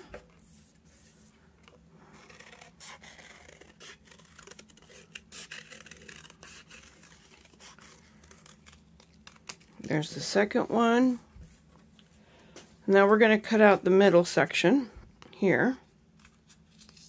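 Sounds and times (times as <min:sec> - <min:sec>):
scissors cutting paperboard: 0:02.2 - 0:09.7.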